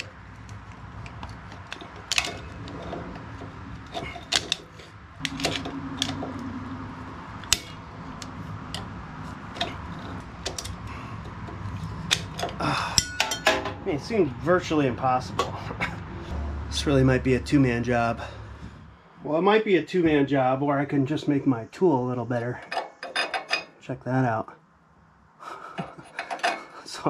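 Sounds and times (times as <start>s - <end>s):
metal tools clicking and scraping: 0.0s - 6.5s, 7.4s - 13.9s, 22.4s - 23.8s, 25.8s - 26.8s.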